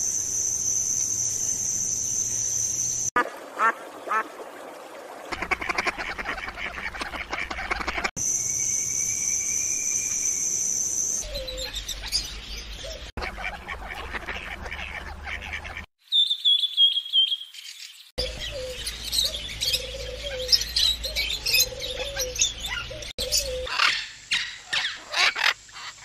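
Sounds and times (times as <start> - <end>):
high whistled bird notes: 8.2 - 11.8, 16.1 - 17.5
birds chirping: 10.9 - 26.0.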